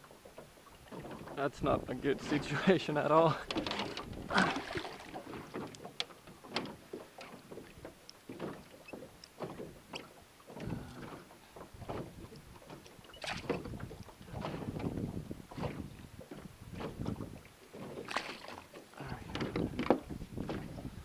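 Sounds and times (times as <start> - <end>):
water splashing: 0.0 - 21.0
knocks against boat hull: 19.3 - 20.8.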